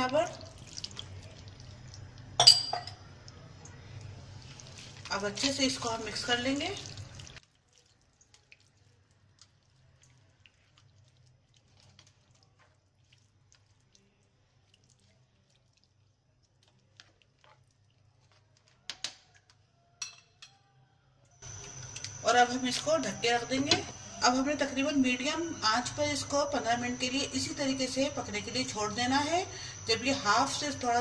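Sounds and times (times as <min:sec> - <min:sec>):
wet stirring in a pan: 0:00.0 - 0:02.4, 0:03.7 - 0:19.6.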